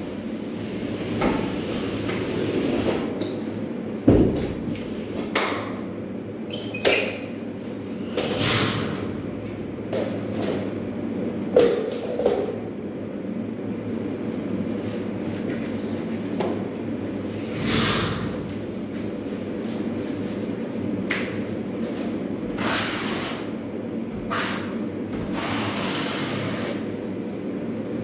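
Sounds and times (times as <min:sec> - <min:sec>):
steady low hum: 0:07.2 - 0:28.0.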